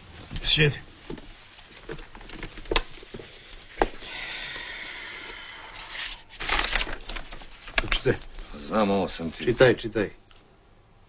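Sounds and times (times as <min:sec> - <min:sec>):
paper rustle: 0:01.2 - 0:04.0, 0:05.7 - 0:09.6.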